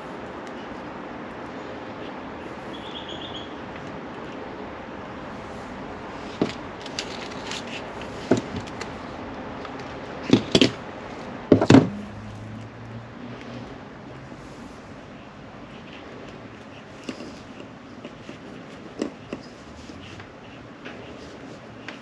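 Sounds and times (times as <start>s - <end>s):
hard objects knocking and clattering: 11.5s - 12.0s.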